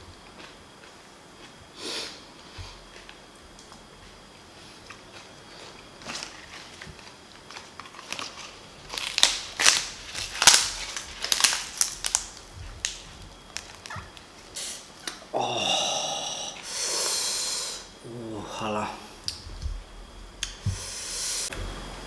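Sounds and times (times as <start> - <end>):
green onion stalks snapping: 8.9 - 14.2.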